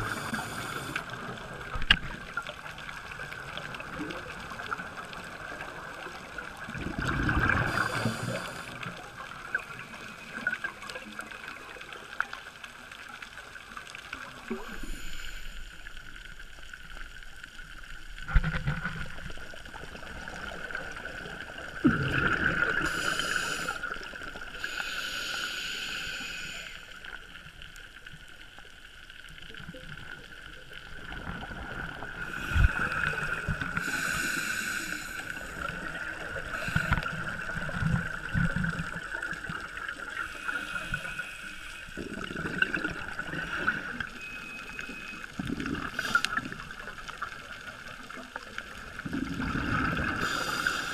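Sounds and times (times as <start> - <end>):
underwater regulator breathing: 0.0 - 1.2, 22.8 - 23.9, 24.6 - 27.0, 32.2 - 37.3, 45.6 - 46.5, 50.0 - 50.9
bubbles gurgling: 3.1 - 8.7, 18.3 - 23.1, 35.4 - 41.1, 41.9 - 50.6.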